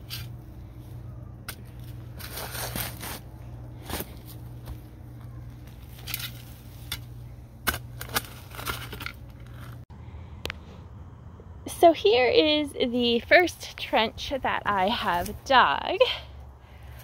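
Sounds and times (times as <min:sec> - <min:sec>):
steady low hum: 0:00.0 - 0:17.0
shovel digging into soil: 0:01.5 - 0:04.4.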